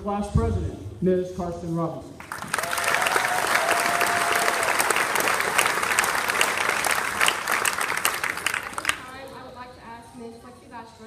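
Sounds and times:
audience applauding: 2.2s - 9.3s.

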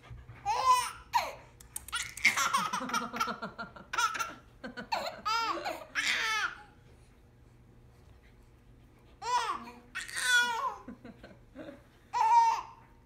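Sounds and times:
baby laughing: 0.5s - 6.6s.

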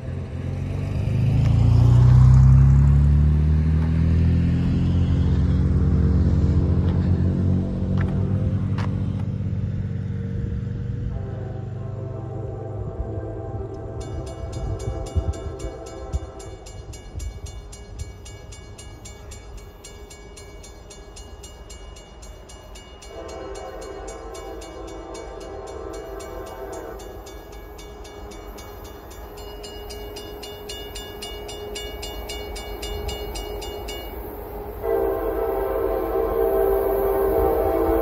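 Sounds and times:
diesel locomotive rumble: 0.0s - 38.0s
locomotive horn blasts: 11.0s - 17.0s, 23.0s - 38.0s.

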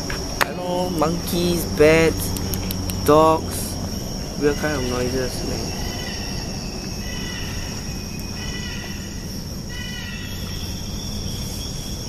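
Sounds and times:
low rumble: 0.0s - 9.6s
crickets chirring: 0.0s - 12.0s.

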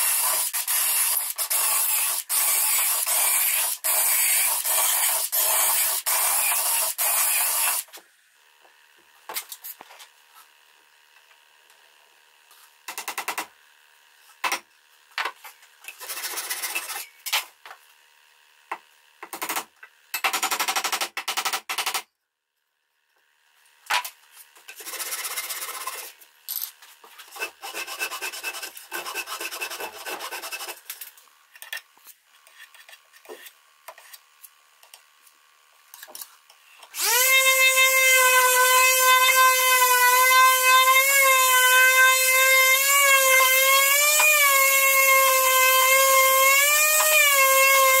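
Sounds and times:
hand saw cutting wood: 24.7s - 26.2s, 27.2s - 30.9s, 37.0s - 48.0s
electric sander whining: 37.0s - 48.0s.

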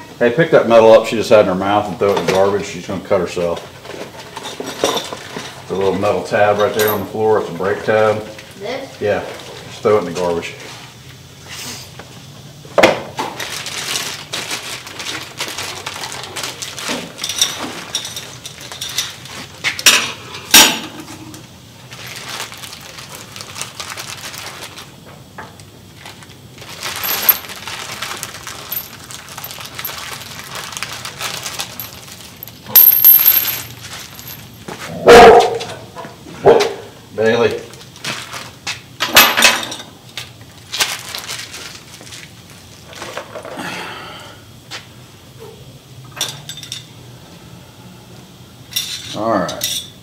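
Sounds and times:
small metal parts clinking: 4.4s - 5.5s, 6.5s - 7.1s, 15.0s - 20.9s, 26.7s - 34.7s, 39.0s - 41.2s, 46.1s - 46.9s, 48.7s - 50.0s
packaging rustling: 13.4s - 19.4s, 21.9s - 25.0s, 26.0s - 32.6s, 37.7s - 38.7s, 40.3s - 43.3s.

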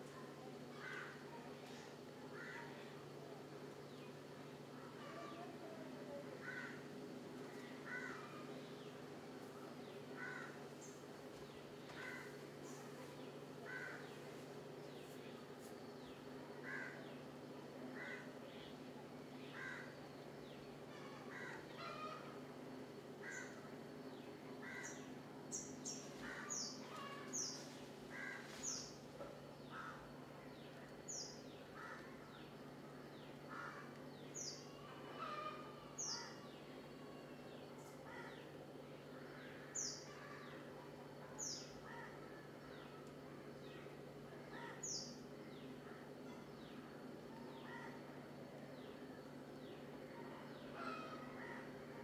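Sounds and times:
steady low hum: 0.0s - 52.0s
birds chirping: 6.4s - 36.8s.

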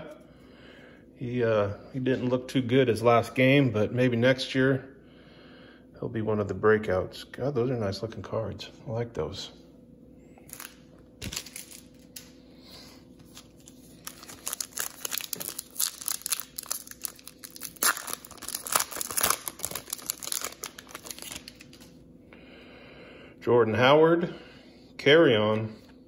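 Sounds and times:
foil wrapper tearing and crinkling: 10.5s - 12.3s, 13.3s - 21.9s.

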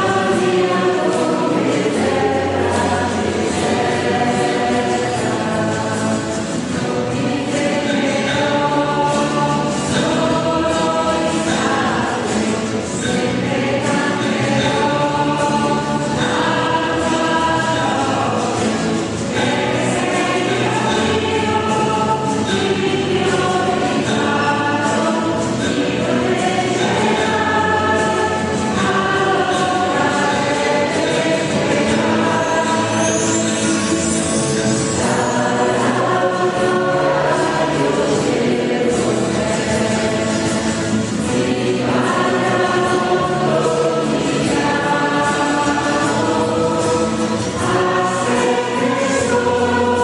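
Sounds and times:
choir singing a hymn: 0.0s - 50.0s.

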